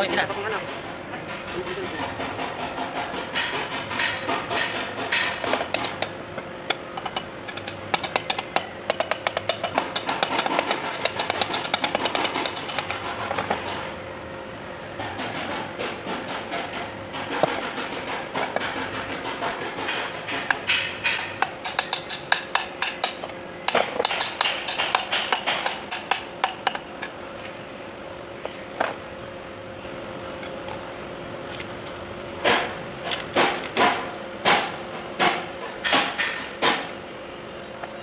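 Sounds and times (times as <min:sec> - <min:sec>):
hammer tapping on metal: 0:00.0 - 0:13.0, 0:15.0 - 0:26.9.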